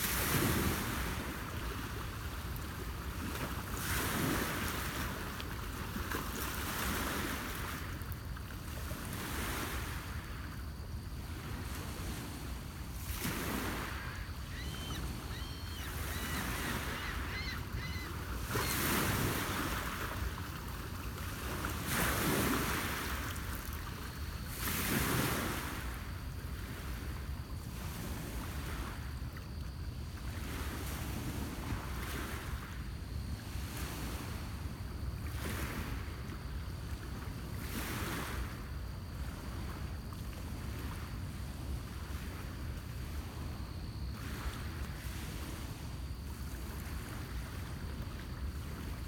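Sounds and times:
lake waves washing on rocky shore: 11.3s - 25.9s.

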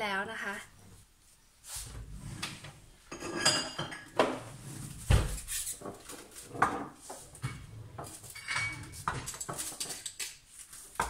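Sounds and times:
dishes and cutlery clinking: 3.1s - 4.5s, 6.6s - 10.5s.

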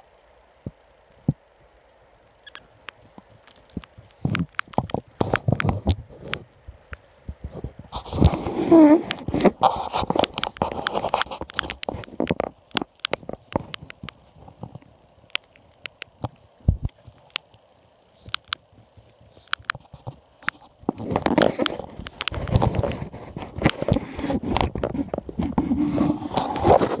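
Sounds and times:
rustling and scratching in bedding: 19.4s - 27.0s.

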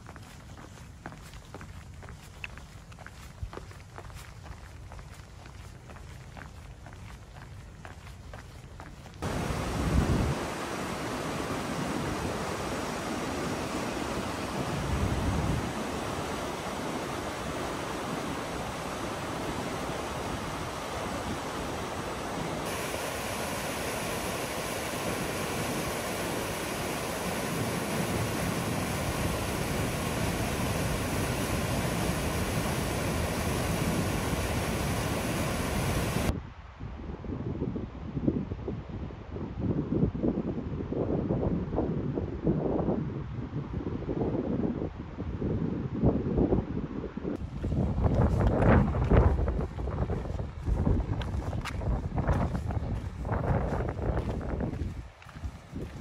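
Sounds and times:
wind on microphone: 0.0s - 56.0s
river rapids rushing: 9.2s - 36.3s.

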